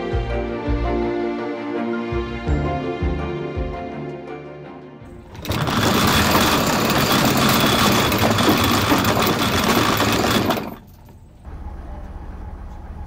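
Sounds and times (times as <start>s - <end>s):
anchor chain rattling: 5.2s - 11.3s.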